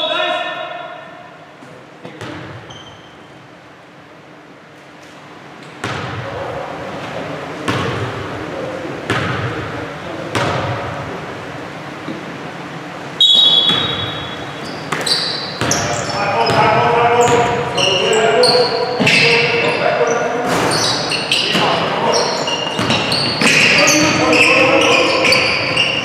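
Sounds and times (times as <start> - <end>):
referee whistle blast: 13.2 - 14.4.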